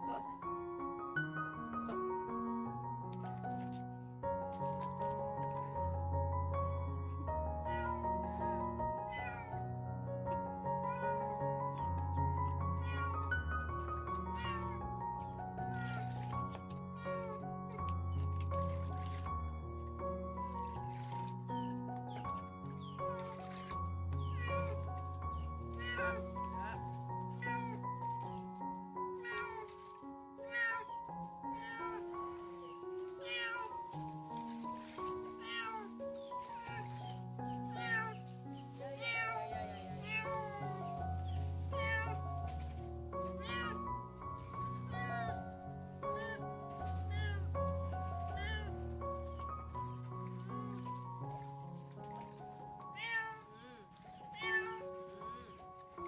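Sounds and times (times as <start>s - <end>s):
background music with held notes: 0.0s - 56.0s
cat meowing: 7.5s - 9.6s, 10.8s - 12.0s, 12.8s - 13.3s, 14.1s - 17.9s, 22.8s - 28.4s, 29.1s - 29.8s, 30.4s - 34.0s, 35.3s - 38.2s, 38.8s - 41.0s, 41.7s - 42.2s, 43.3s - 45.4s, 46.0s - 49.4s, 52.9s - 55.6s.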